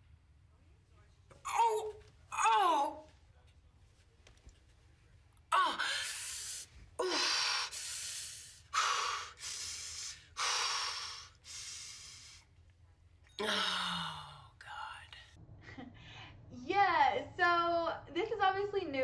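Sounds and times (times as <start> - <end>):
woman groaning: 1.5 - 3.0, 5.5 - 6.3, 7.0 - 7.7, 13.4 - 14.5
woman gasping breaths: 5.7 - 12.4.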